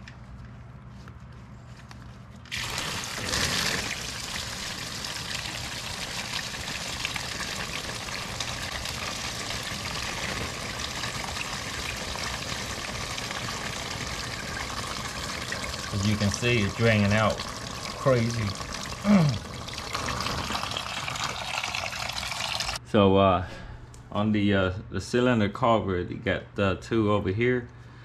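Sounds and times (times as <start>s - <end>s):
coolant gushing and splashing: 2.5s - 22.8s.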